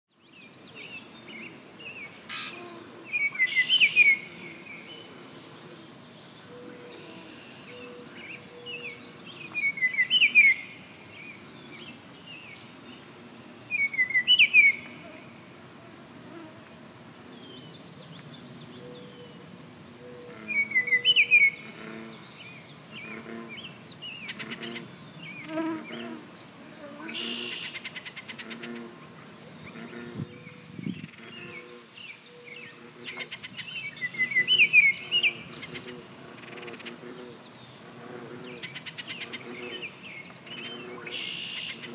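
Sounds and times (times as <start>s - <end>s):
other birds chirping: 2.0s - 5.0s.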